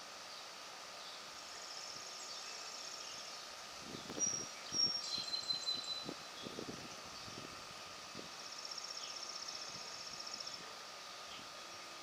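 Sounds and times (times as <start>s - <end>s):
songbird trilling: 4.0s - 6.6s
bird whistling: 4.2s - 6.1s.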